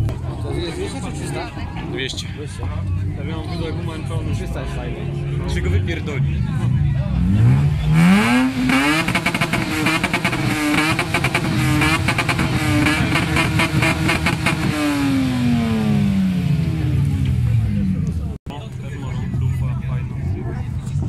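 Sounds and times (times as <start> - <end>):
car engine revving: 3.9 - 18.4.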